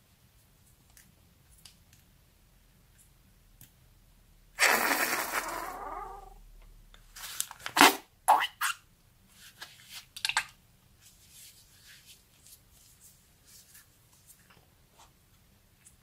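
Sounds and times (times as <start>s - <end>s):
foam squelching from rubber glove: 4.6s - 6.3s
soft crackles: 11.0s - 16.0s.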